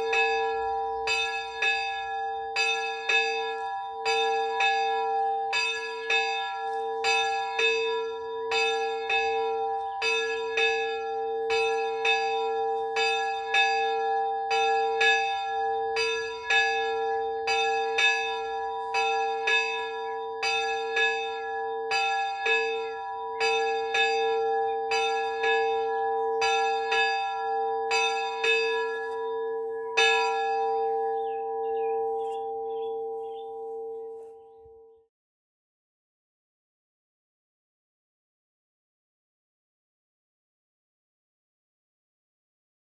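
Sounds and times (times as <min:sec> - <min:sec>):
bell ringing: 0:00.0 - 0:34.3.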